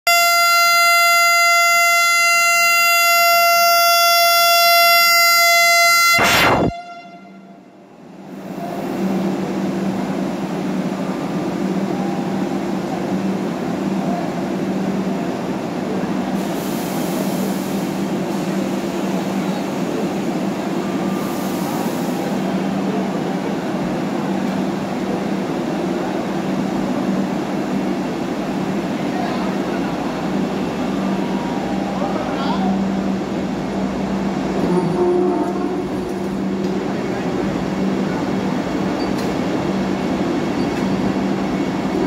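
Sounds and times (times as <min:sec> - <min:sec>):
electric train low hum: 0:00.1 - 0:42.0
short high hisses: 0:06.2 - 0:06.7.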